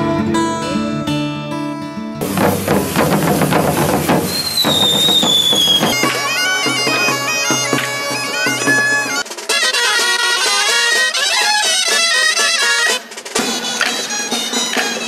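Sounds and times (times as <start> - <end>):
high sliding tone: 2.2 - 9.2
small drum: 2.2 - 9.4
bagpipe melody: 4.4 - 15.0
bagpipe drone: 4.6 - 15.0.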